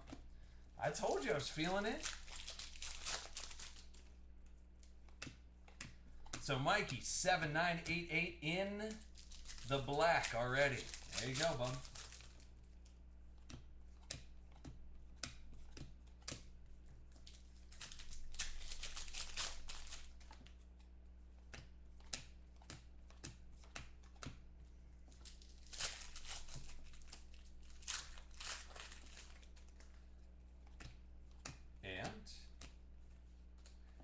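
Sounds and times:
plastic and foil wrapper crinkling: 0:00.8 - 0:04.2, 0:08.4 - 0:13.0, 0:17.2 - 0:20.6, 0:25.0 - 0:30.1.

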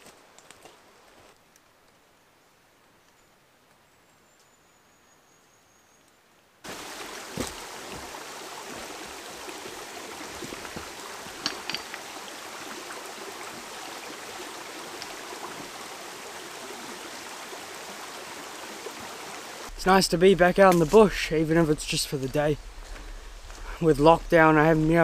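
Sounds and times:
stream running over stones: 0:06.6 - 0:25.0
boots stepping through water: 0:06.7 - 0:12.2.

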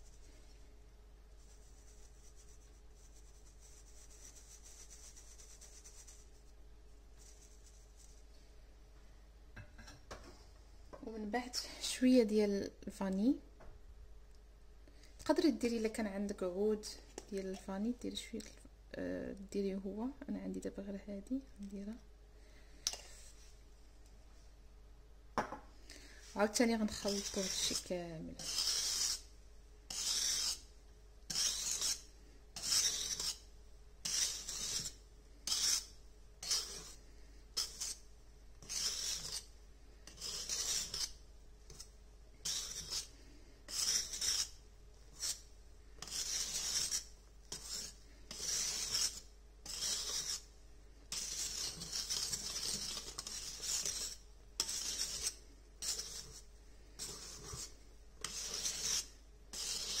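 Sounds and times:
whisk scraping metal bowl: 0:26.3 - 0:29.3, 0:29.9 - 0:30.7, 0:31.3 - 0:37.0, 0:37.6 - 0:38.0, 0:38.6 - 0:43.1, 0:43.7 - 0:50.5, 0:51.1 - 1:00.0.

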